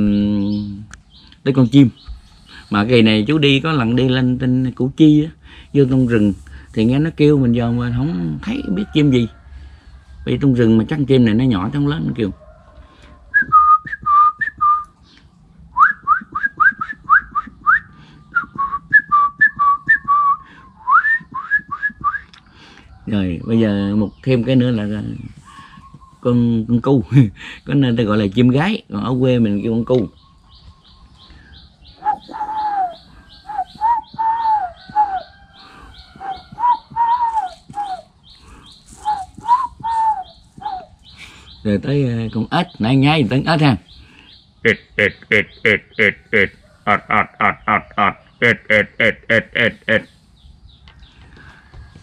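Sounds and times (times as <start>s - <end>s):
man whistling bird call: 13.3s - 15.0s, 15.7s - 22.4s, 31.5s - 41.6s
man imitating dove cooing: 32.0s - 35.3s, 36.1s - 38.1s, 39.0s - 41.0s, 44.6s - 50.2s.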